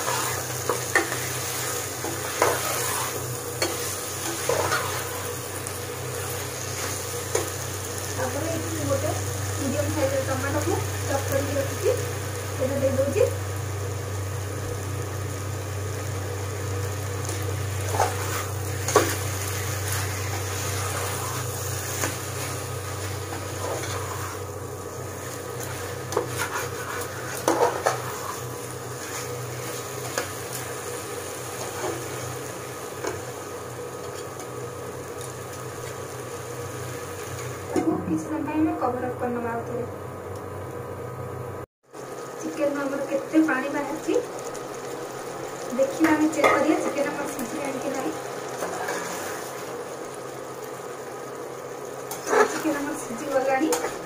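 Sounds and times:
spatula scraping a pan: 0:00.0 - 0:05.4, 0:17.8 - 0:24.5, 0:25.1 - 0:30.6, 0:48.6 - 0:49.6, 0:52.1 - 0:52.7
frying sizzle: 0:00.0 - 0:54.0.

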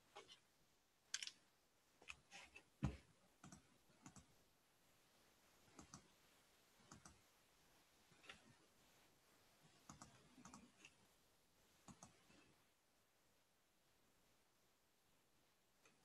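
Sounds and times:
faint irregular clicks: 0:03.4 - 0:04.4, 0:05.7 - 0:06.2, 0:06.8 - 0:07.3, 0:09.8 - 0:11.1, 0:11.8 - 0:12.5, 0:15.8 - 0:16.0.

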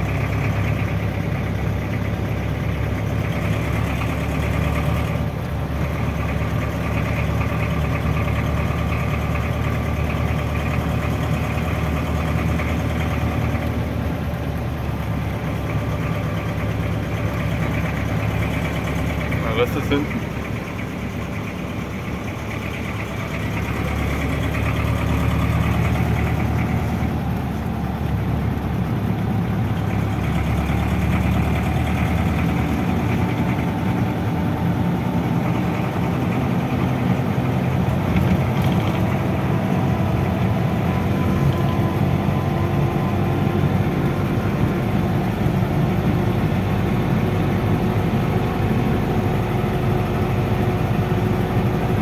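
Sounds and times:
road noise: 0:00.0 - 0:52.0
truck engine running: 0:00.0 - 0:52.0.

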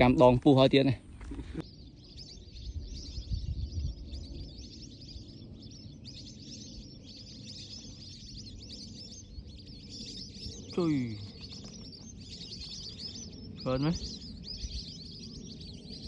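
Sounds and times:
birds chirping chorus: 0:00.0 - 0:16.0
low rumble: 0:00.9 - 0:16.0.

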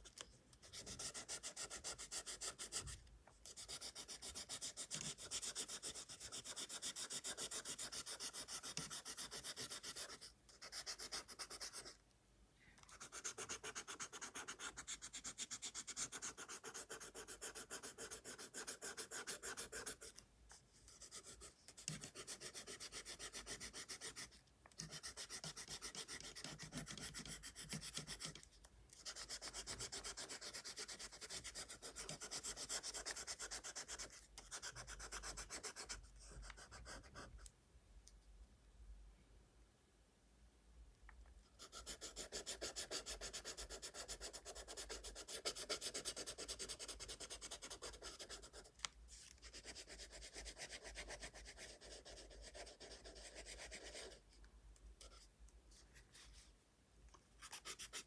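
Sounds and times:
coloured pencil shading on paper: 0:00.7 - 0:12.0, 0:12.9 - 0:20.2, 0:20.9 - 0:28.4, 0:29.0 - 0:37.4, 0:41.6 - 0:48.7.

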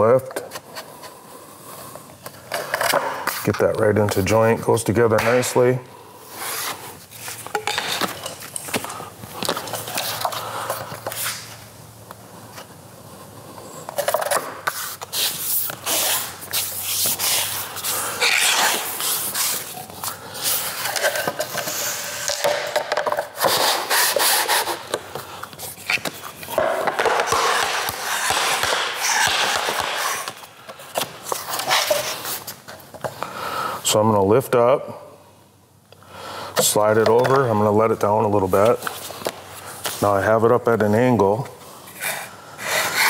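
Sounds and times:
flooring planks scraping: 0:23.4 - 0:24.9, 0:25.6 - 0:32.5.

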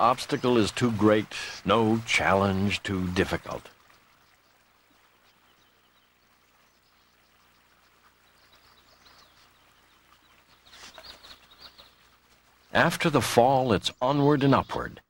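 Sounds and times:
faint outdoor ambience: 0:00.0 - 0:15.0
faint bird chirps: 0:03.3 - 0:15.0.

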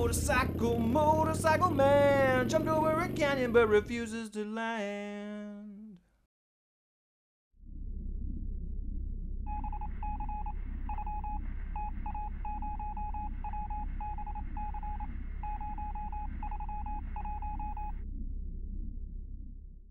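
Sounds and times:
steady low rumble: 0:00.0 - 0:04.0, 0:07.6 - 0:19.9
electronic morse beeps: 0:09.5 - 0:18.0.

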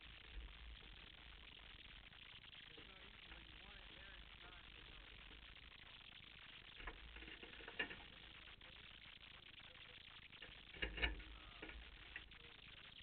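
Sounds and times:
low background noise: 0:00.0 - 0:13.0.

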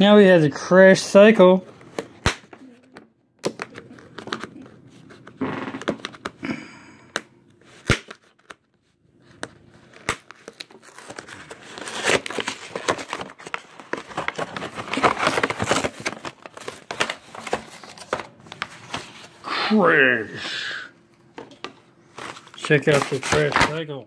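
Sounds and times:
plastic packaging crinkling: 0:09.7 - 0:19.3, 0:22.2 - 0:23.9.

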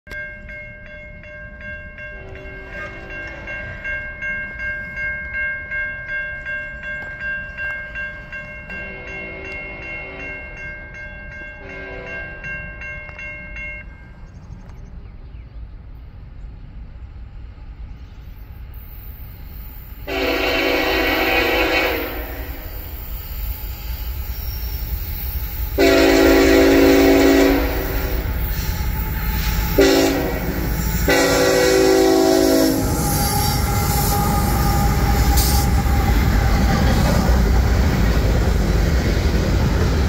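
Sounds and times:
crossing warning bells ringing: 0:00.1 - 0:14.8, 0:18.8 - 0:40.0
locomotive horn blasting: 0:08.8 - 0:10.4, 0:11.6 - 0:12.4, 0:20.1 - 0:22.8, 0:25.8 - 0:28.3, 0:29.4 - 0:37.2.

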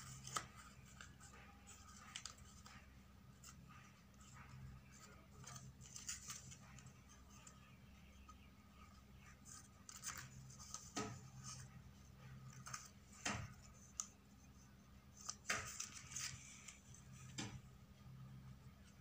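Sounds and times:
stiff paper rustling: 0:00.0 - 0:07.6, 0:15.1 - 0:17.6
faint low hum: 0:00.0 - 0:19.0.

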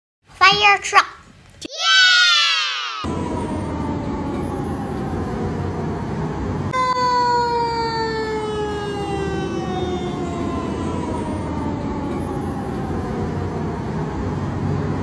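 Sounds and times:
fire truck siren wailing: 0:02.0 - 0:15.0
traffic: 0:03.0 - 0:15.0
truck engine rumble: 0:03.1 - 0:15.0.

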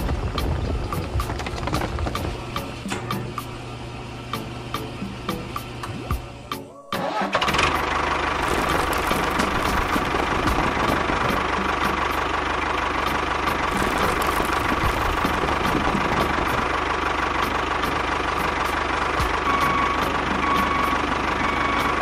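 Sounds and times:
tractor engine idling: 0:07.0 - 0:22.0.

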